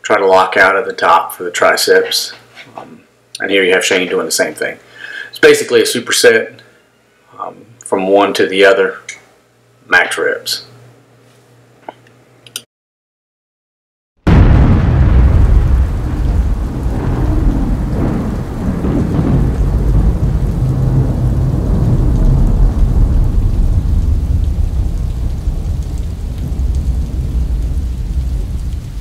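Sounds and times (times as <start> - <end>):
steady rain: 14.3 - 29.0
thunder crack and rumble: 14.3 - 29.0.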